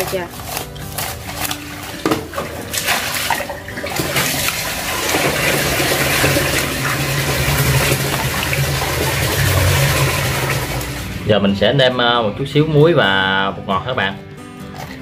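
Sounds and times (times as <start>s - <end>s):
wet handling of fish: 0.0s - 11.1s
running water: 0.0s - 11.4s.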